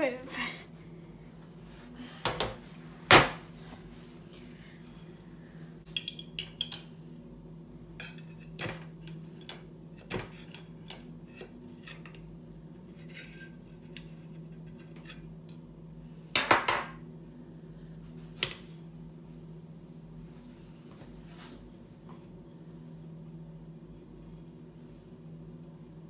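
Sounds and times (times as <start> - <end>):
forks clinking on glass bowl: 6.0 - 6.8.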